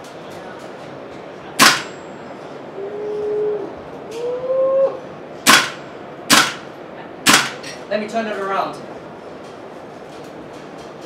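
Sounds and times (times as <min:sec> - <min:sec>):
airsoft rifle shots: 0:01.6 - 0:02.0, 0:05.5 - 0:07.6.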